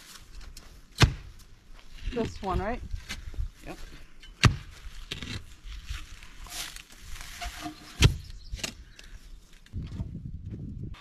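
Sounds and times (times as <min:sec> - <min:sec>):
digger knocks and scrapes: 0:04.3 - 0:08.8.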